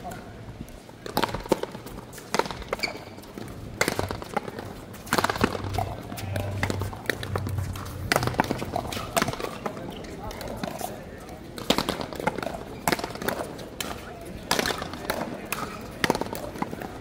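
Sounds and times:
wooden paddles striking a ball: 0:01.0 - 0:09.7, 0:11.6 - 0:16.8
low steady hum: 0:03.5 - 0:09.8.

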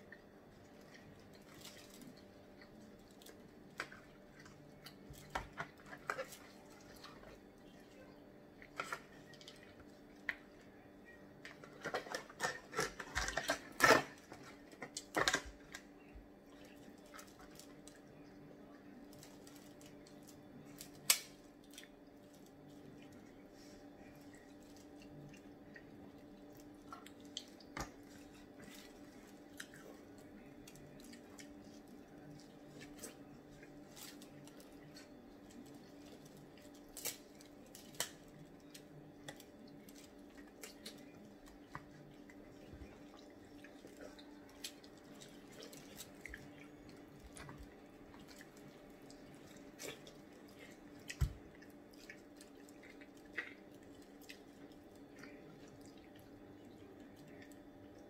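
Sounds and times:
low steady hum: 0:00.0 - 0:58.0
wet chewing and smacking: 0:11.5 - 0:58.0
crab shells cracking: 0:19.1 - 0:22.7, 0:28.7 - 0:42.4.

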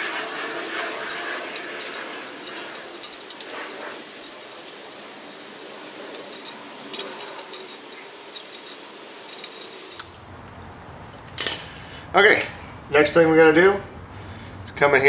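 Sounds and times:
metallic clinks of bolts and nuts: 0:00.3 - 0:10.1, 0:11.1 - 0:11.8
ratchet wrench clicking: 0:00.4 - 0:10.1.

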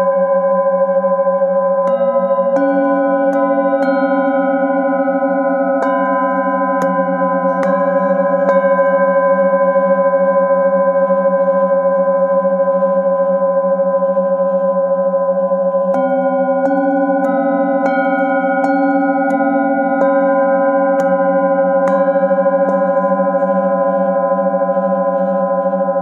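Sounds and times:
singing bowls ringing: 0:00.0 - 0:26.0
mallet striking singing bowl: 0:01.9 - 0:09.2, 0:15.9 - 0:24.0.

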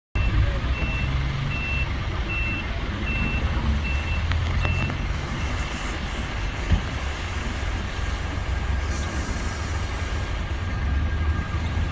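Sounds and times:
reversing beeper: 0:00.2 - 0:06.7
diesel engines idling: 0:00.2 - 0:11.9.

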